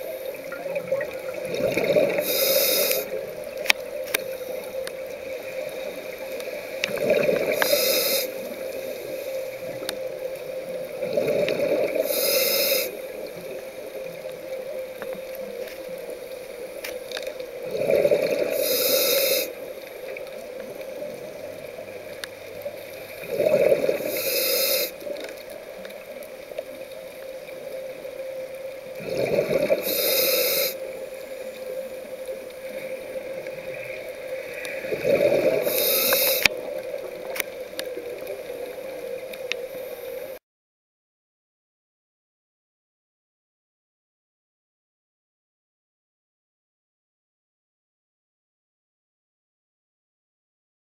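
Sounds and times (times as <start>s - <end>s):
regulator inhale hiss: 1.8s - 9.8s, 11.1s - 13.6s, 17.8s - 20.7s, 22.7s - 25.5s, 29.4s - 37.0s, 39.6s - 40.4s.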